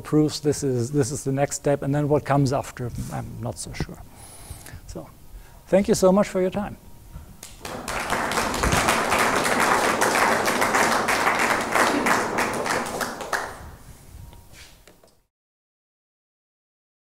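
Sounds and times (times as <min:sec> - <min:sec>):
audience applause: 0:07.4 - 0:13.8.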